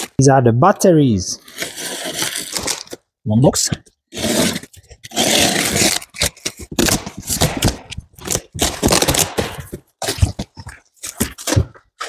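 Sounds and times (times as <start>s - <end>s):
packing tape ripping: 1.4s - 3.0s, 4.1s - 12.0s.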